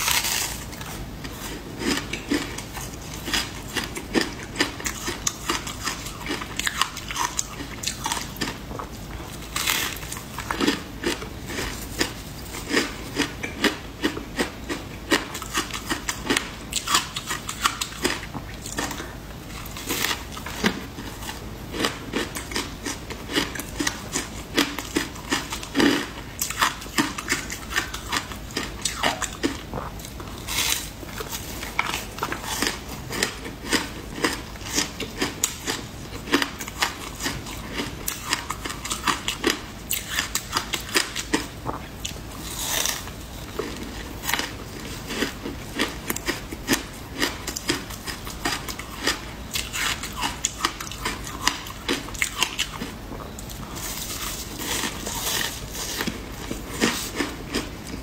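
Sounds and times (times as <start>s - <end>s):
crunching and chewing ice: 0.0s - 58.0s.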